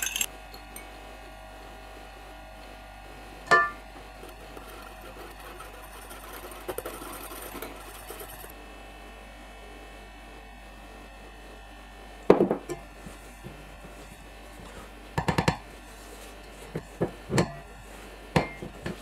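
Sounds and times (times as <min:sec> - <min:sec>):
spatula knocking metal bowl: 0:03.5 - 0:03.8
whisk beating in glass bowl: 0:04.1 - 0:08.5.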